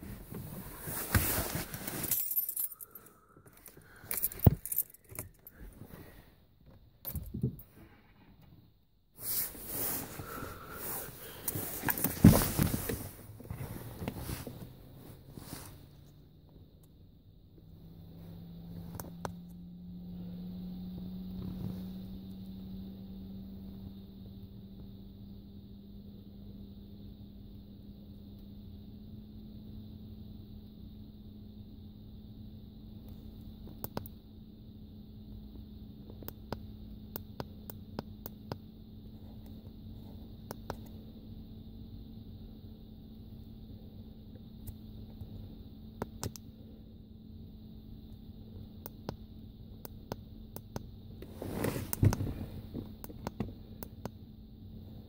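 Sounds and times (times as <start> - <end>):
rustling and fumbling handling noise: 0.0 - 5.9, 11.4 - 14.8
car interior hum and rumble: 0.0 - 55.0.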